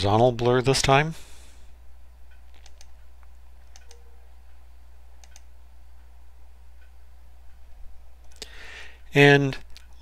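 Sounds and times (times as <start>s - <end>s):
steady low hum: 0.0s - 10.0s
computer mouse clicks: 2.3s - 3.0s, 3.6s - 4.0s, 5.2s - 5.5s.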